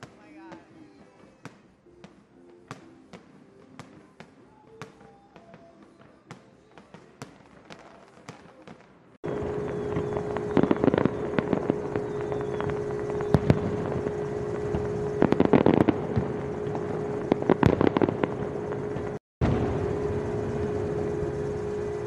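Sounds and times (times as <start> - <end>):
fireworks bangs and crackles: 0.0 - 22.0
low droning tone: 9.3 - 22.0
steady rushing noise: 9.3 - 22.0.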